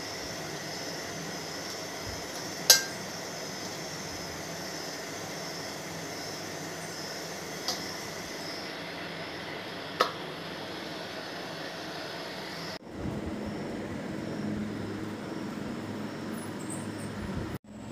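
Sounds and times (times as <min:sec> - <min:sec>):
low humming noise: 0:00.0 - 0:17.9
steady hiss and rumble: 0:00.0 - 0:17.9.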